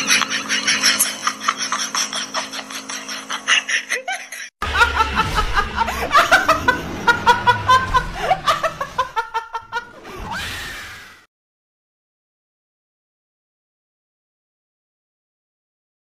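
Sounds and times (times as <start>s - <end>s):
young woman laughing: 0.0s - 10.0s.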